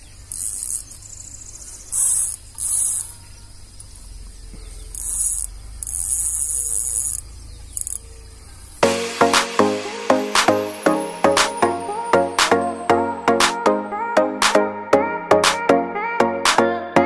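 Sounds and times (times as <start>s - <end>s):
fishing reel spinning hiss: 0.3s - 1.0s, 1.6s - 3.2s, 4.8s - 8.0s.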